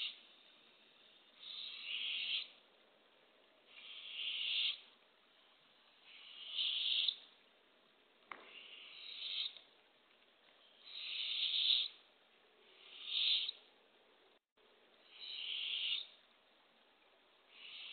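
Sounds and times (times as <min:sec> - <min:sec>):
owlet raspy hissing begging call: 0:01.4 - 0:02.5, 0:03.7 - 0:04.8, 0:06.1 - 0:07.2, 0:08.5 - 0:09.5, 0:10.8 - 0:12.0, 0:12.7 - 0:13.6, 0:15.0 - 0:16.1, 0:17.5 - 0:17.9.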